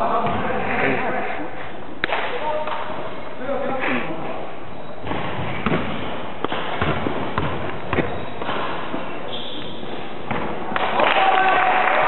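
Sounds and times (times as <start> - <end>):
steady hall hiss: 0.0 - 12.0
basketball bouncing on wooden floor: 5.1 - 8.8.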